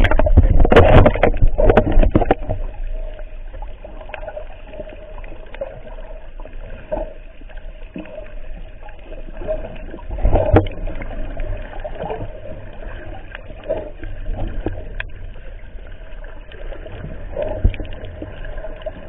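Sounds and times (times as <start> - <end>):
muffled water rumble: 0.0 - 19.0
underwater splashing and knocks: 0.0 - 19.0.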